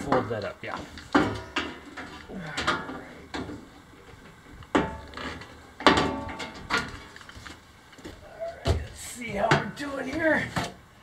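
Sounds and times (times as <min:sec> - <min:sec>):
metal sheet clanking on wood: 0:00.0 - 0:03.6, 0:04.7 - 0:07.2.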